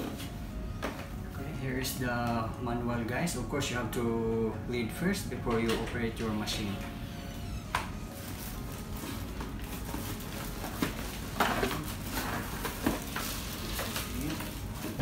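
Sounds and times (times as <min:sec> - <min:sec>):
cardboard scraping: 0:08.0 - 0:15.0
plastic packaging crinkling: 0:08.0 - 0:15.0.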